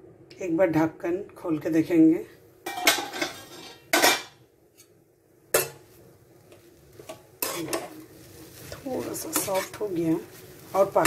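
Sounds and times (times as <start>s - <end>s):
spatula clanking in pan: 2.7s - 4.9s, 5.5s - 5.8s, 7.0s - 8.0s
spatula scraping pan: 2.7s - 4.9s, 6.5s - 11.0s.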